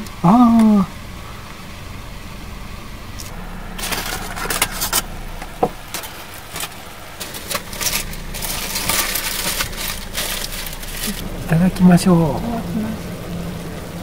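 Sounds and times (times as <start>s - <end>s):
steady low hum: 0.0s - 14.0s
food crackling and hissing: 3.1s - 14.0s.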